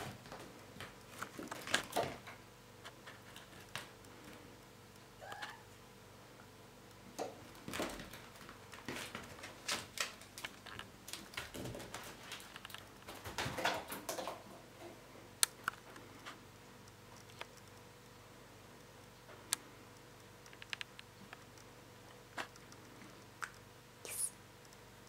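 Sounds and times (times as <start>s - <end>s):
sharp clicks: 19.5s - 21.7s.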